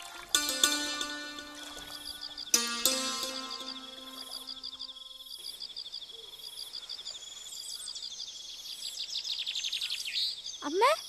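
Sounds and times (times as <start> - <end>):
plucked-string chord ringing: 0.0 - 5.0.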